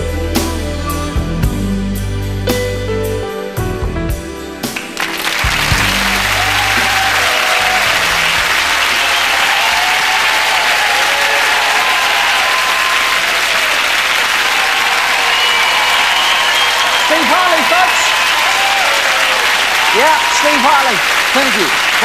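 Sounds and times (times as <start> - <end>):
audience applauding: 4.6 - 22.0.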